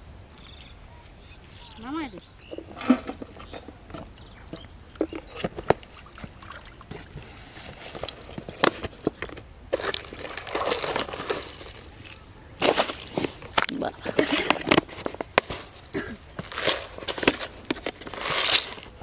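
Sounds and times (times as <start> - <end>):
gritty grains pouring: 9.7 - 13.4, 16.4 - 19.0.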